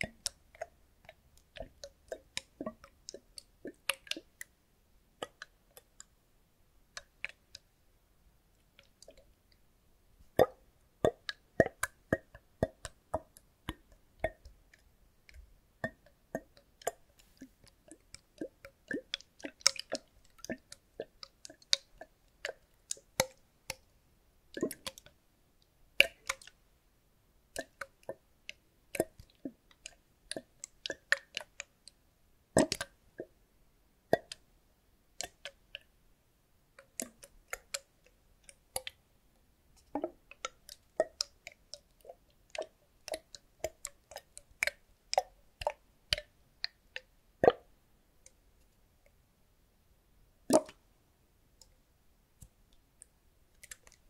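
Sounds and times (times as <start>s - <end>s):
liquid sloshing in a plastic bottle: 24.6s - 25.1s, 32.6s - 33.3s, 39.8s - 47.7s, 50.5s - 50.8s.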